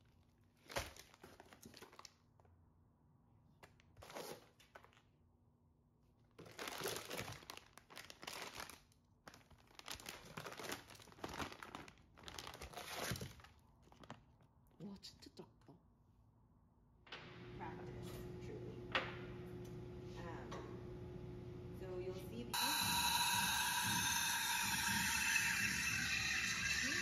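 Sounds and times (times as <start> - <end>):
packaging crinkling and tearing: 0.0 - 2.2, 6.3 - 14.4.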